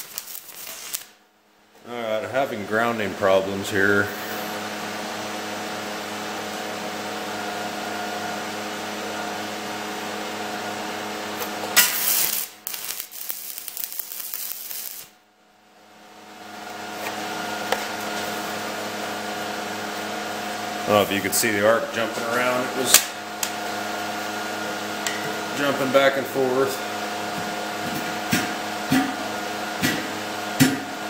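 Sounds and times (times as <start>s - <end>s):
welding arc crackling: 0.0s - 1.2s, 11.4s - 15.2s
electrical hum: 0.0s - 31.0s.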